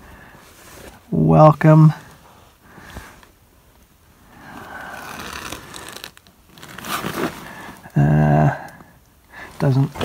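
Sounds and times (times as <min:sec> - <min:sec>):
faint rustling and scraping: 0:00.0 - 0:07.9.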